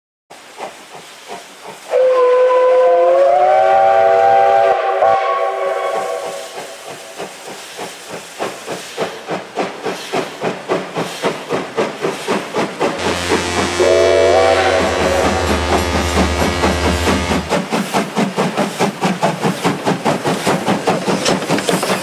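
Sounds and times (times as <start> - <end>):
steam locomotive whistle: 1.9 - 6.8, 13.0 - 17.7
locomotive exhaust chuffs: 5.7 - 22.0.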